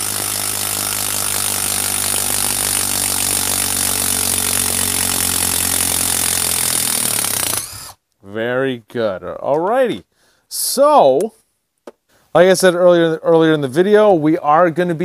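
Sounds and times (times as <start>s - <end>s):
impact driver driving screw into wood: 0.0s - 8.0s.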